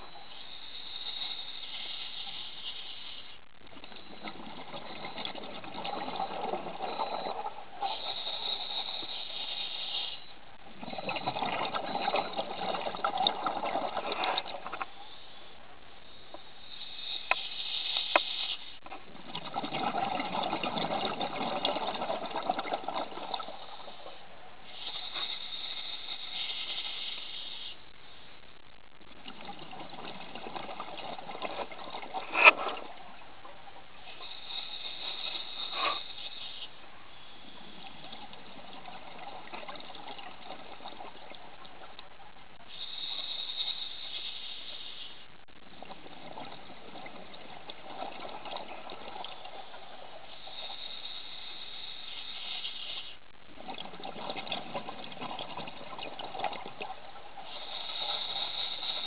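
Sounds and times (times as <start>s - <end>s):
regulator inhalation hiss: 0.0s - 3.5s, 6.8s - 11.0s, 14.9s - 18.8s, 23.4s - 28.4s, 34.0s - 38.4s, 42.6s - 45.4s, 49.6s - 53.3s, 57.4s - 59.0s
exhaled bubbles gushing: 3.6s - 9.1s, 10.6s - 14.9s, 18.9s - 24.1s, 29.0s - 35.0s, 37.4s - 42.6s, 45.6s - 50.9s, 53.5s - 59.0s.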